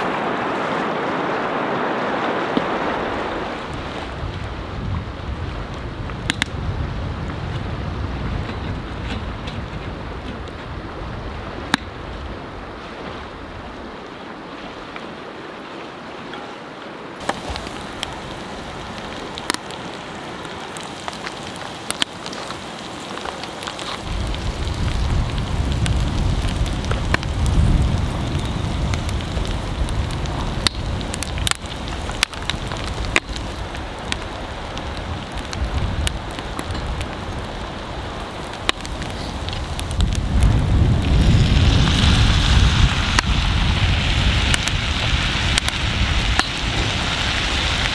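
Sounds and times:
wood fire crackling and popping: 2.2 - 10.8, 17.2 - 47.9.

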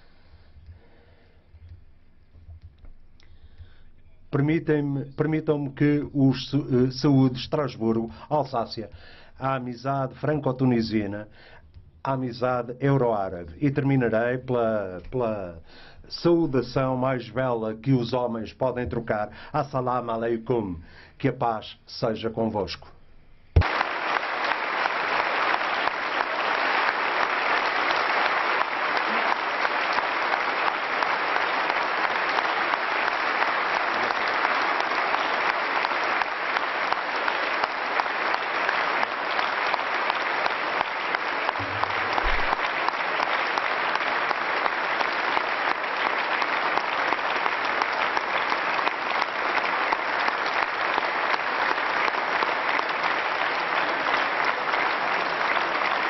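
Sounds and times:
crowd applause: 23.6 - 56.0.

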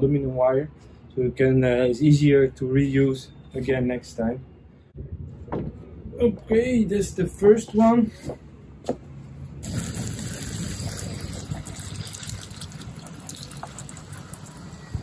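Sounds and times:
water pouring: 9.6 - 15.0.

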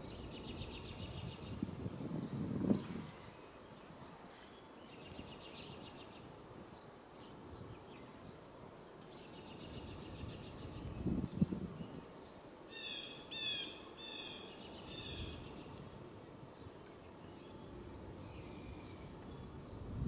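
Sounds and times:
songbirds trilling and calling: 0.0 - 20.0
faint clicks: 9.5 - 11.6.

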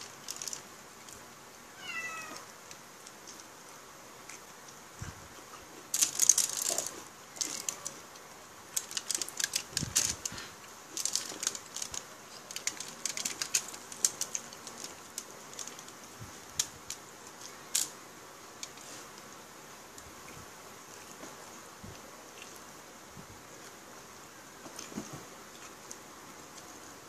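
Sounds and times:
chewing and eating sounds: 20.2 - 22.7.

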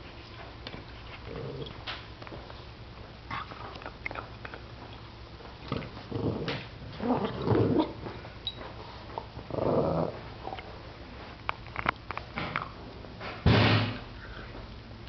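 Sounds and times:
dog growling: 1.2 - 1.8, 5.6 - 8.0, 9.4 - 10.3.

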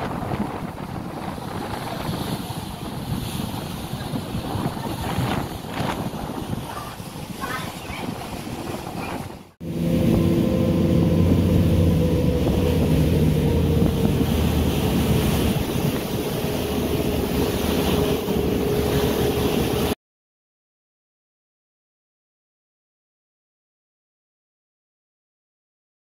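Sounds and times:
water noise: 0.0 - 20.0
wind: 0.0 - 20.0
ship engines droning: 8.3 - 20.0.

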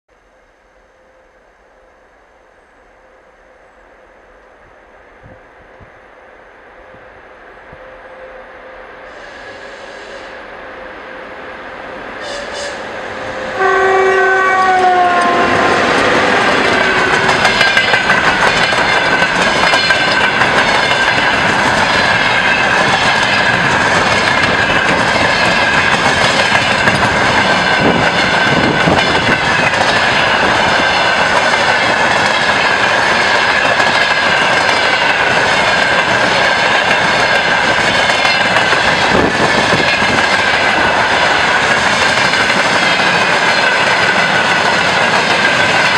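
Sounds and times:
locomotive horn blast: 7.8 - 17.4
train wheels clattering on rails: 14.7 - 45.9.

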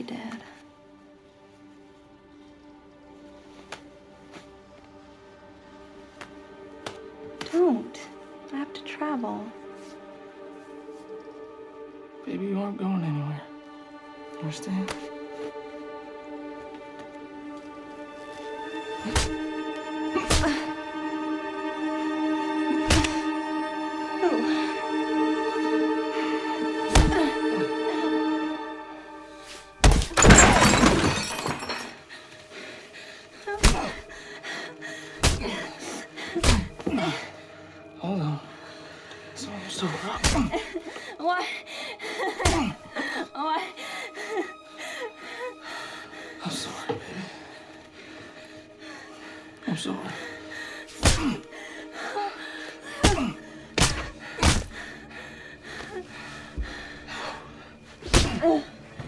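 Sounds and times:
faint music: 0.0 - 59.0
punches thudding: 53.0 - 54.8, 58.1 - 58.4.

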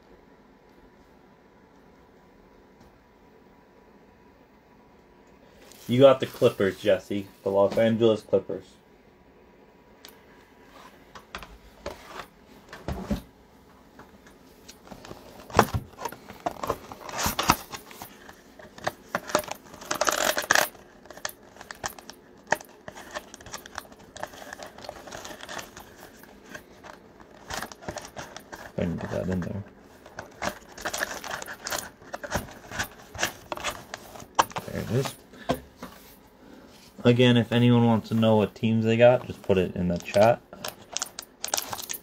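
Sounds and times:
cardboard and foil rustling: 14.8 - 35.2, 39.2 - 42.0.

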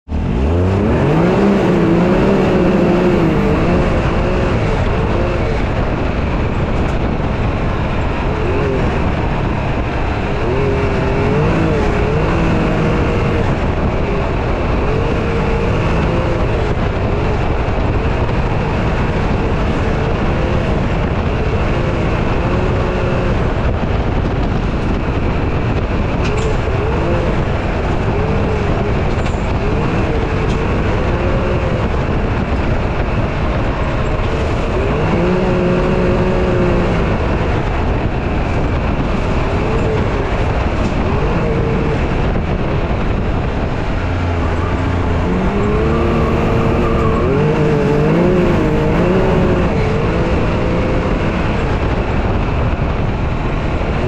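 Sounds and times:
engine revving: 0.0 - 54.0
tyre and wind noise: 0.0 - 54.0.

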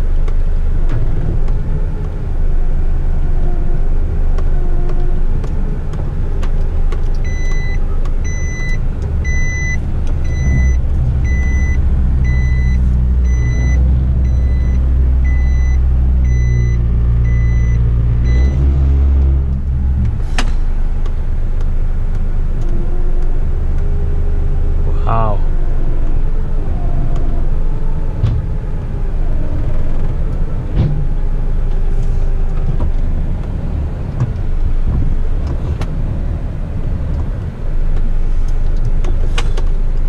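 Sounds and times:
diesel engine revving: 0.0 - 40.0
warning beeper: 7.3 - 18.7.

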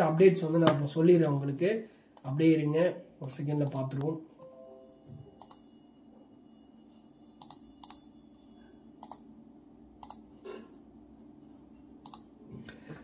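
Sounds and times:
faint steady hum: 0.0 - 13.0
computer mouse clicks: 5.4 - 5.6, 7.4 - 8.0, 9.0 - 9.3, 10.0 - 10.2, 12.0 - 12.3.

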